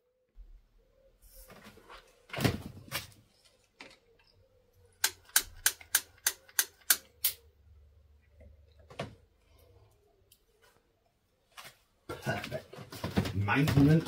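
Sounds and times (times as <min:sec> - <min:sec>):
sharp metallic clicks: 0:05.0 - 0:07.4.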